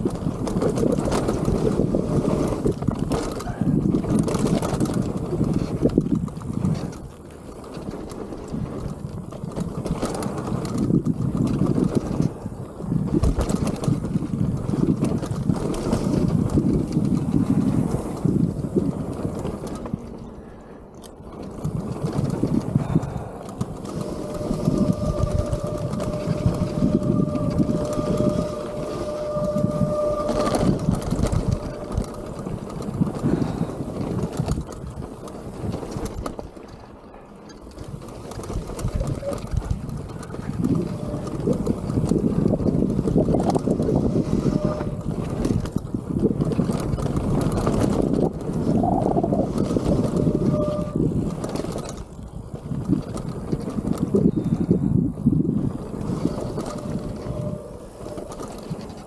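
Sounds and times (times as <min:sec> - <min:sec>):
wind on microphone: 0:00.0 - 0:37.0, 0:37.6 - 0:59.0
tyre rumble over dirt: 0:00.0 - 0:59.0
thin steady whine: 0:19.8 - 0:34.0, 0:55.7 - 0:59.0.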